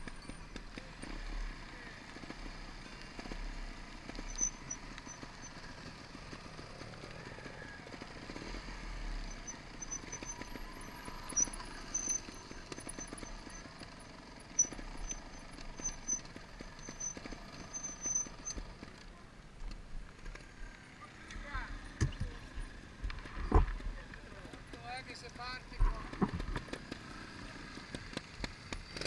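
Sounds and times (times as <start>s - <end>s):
motorcycle engine running: 0.0s - 29.0s
knocks and rattles over bumps: 21.3s - 27.1s.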